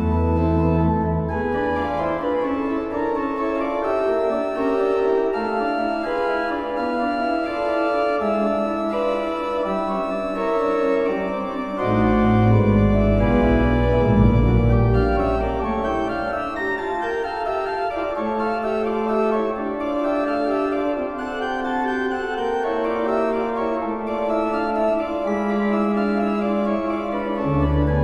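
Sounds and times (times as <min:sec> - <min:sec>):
deep organ pedal bass: 0:00.0 - 0:02.1, 0:11.6 - 0:17.7, 0:24.4 - 0:28.0
church organ sustained chords: 0:00.0 - 0:28.0.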